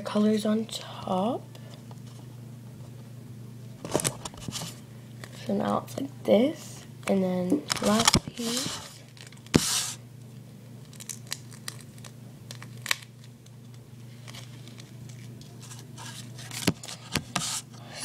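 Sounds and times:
tape crackling: 7.7s - 17.6s
duct tape ripping: 10.9s - 13.3s.

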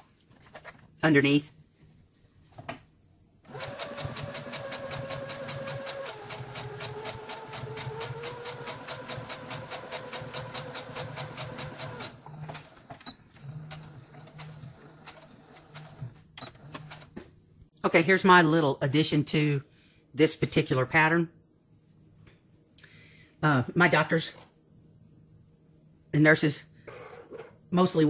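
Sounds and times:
sewing machine stitching: 3.5s - 17.1s.

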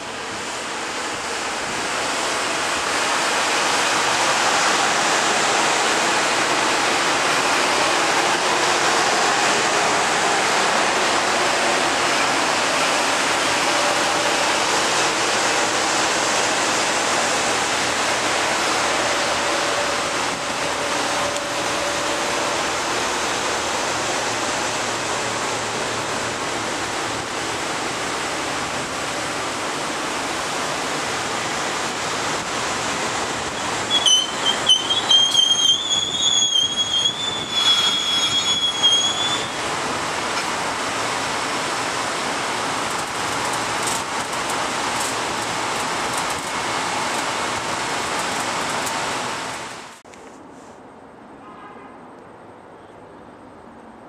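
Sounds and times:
train wheels rushing on rail: 0.0s - 50.5s
high-pitched wheel squeal: 33.6s - 39.6s.

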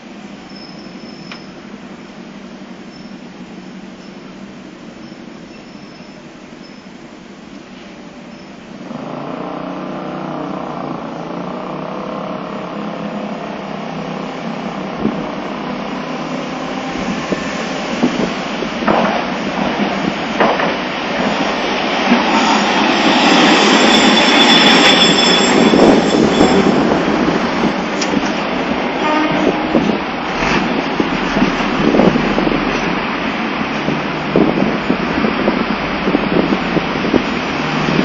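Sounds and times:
streetcar motor and wheels on rail: 0.0s - 38.0s
high metallic squeal: 0.4s - 1.6s, 5.0s - 7.0s, 21.5s - 29.9s.

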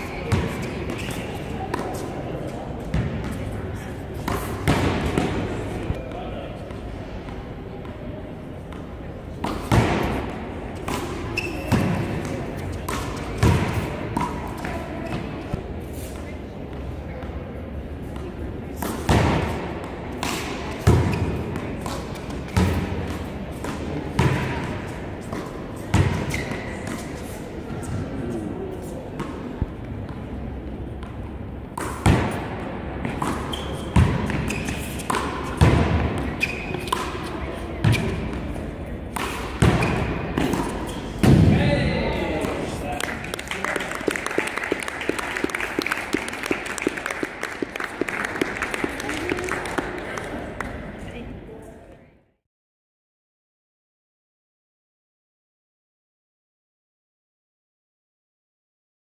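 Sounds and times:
handball smacks echoing in hall: 0.0s - 15.6s, 18.8s - 27.1s, 31.0s - 38.5s, 39.1s - 50.9s
sneakers squeaking: 0.0s - 43.0s.

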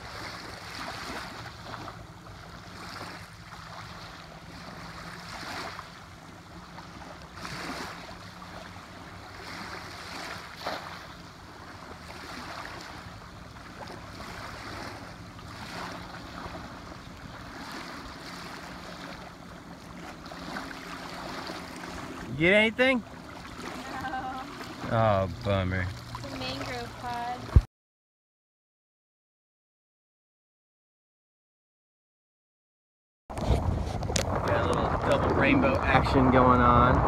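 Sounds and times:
small waves lapping: 0.0s - 27.7s
wind on microphone: 33.3s - 37.0s.

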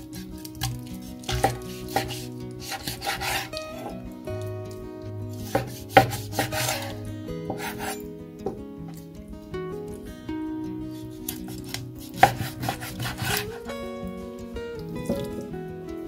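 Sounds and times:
knife scraping through meat: 0.0s - 3.9s, 5.4s - 8.1s, 11.2s - 13.6s
soft background music: 0.0s - 16.0s.

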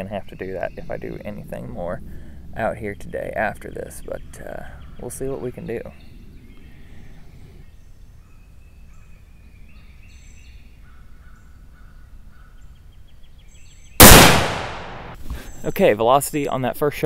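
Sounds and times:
low outdoor rumble: 0.0s - 7.6s
birds singing: 0.0s - 16.7s.

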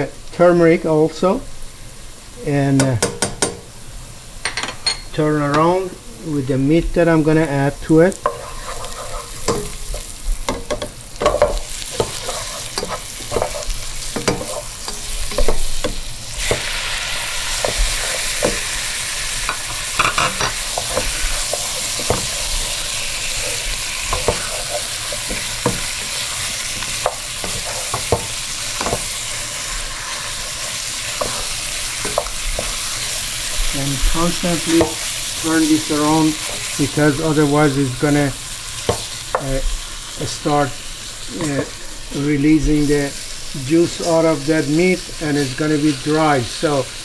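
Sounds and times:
meat sizzling in oil: 0.0s - 47.0s
wooden spatula scraping pot: 8.2s - 37.7s.

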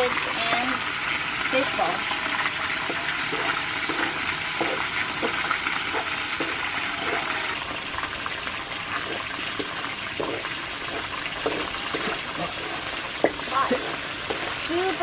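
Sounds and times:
food sizzling in hot oil: 0.0s - 15.0s
wooden spatula scraping wok: 2.4s - 7.6s, 8.9s - 15.0s.

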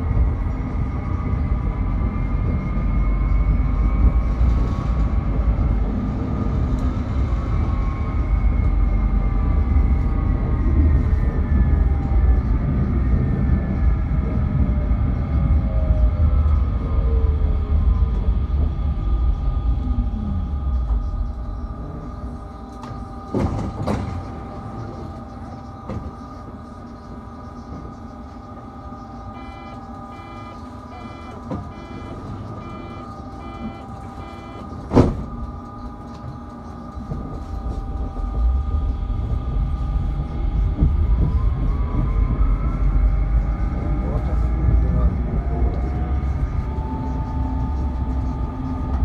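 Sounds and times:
tram motor whine and rumble: 0.0s - 49.0s
steady electrical hum: 20.4s - 40.7s
doors closing clunk: 22.7s - 26.4s, 29.4s - 35.6s
door warning beeps: 29.3s - 35.3s.

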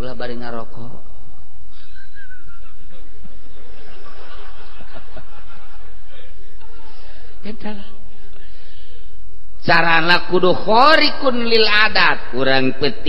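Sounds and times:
soft chuckles: 1.7s - 7.1s.

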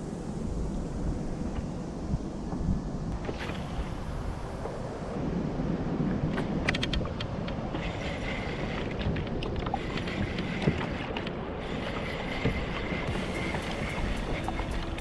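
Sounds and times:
water lapping around kayak: 0.0s - 15.0s
wind buffeting microphone: 0.0s - 15.0s
faint steady reel whine: 7.5s - 15.0s.

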